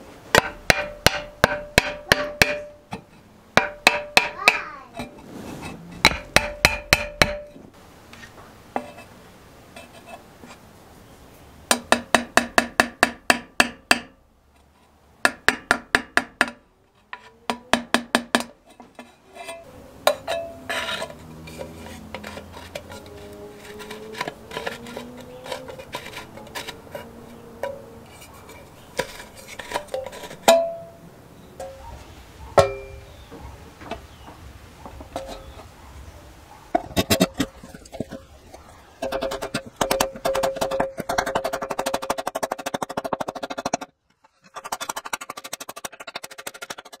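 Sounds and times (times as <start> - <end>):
stick knocking in steel tank: 6.0 - 7.6
soft clinks and scraping: 18.6 - 31.0, 35.1 - 35.7.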